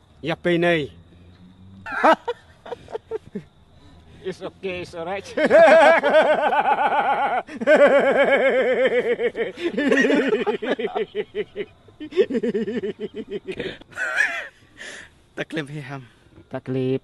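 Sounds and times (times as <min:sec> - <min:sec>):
men laughing out loud: 0:01.8 - 0:04.0, 0:05.1 - 0:15.0.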